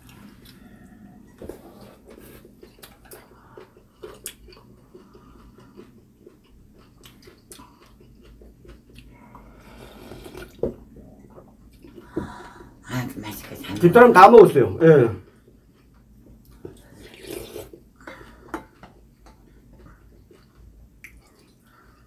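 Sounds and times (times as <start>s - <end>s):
chewing: 0.0s - 12.1s, 15.2s - 22.0s
sipping and slurping broth: 9.6s - 10.6s, 16.9s - 17.8s.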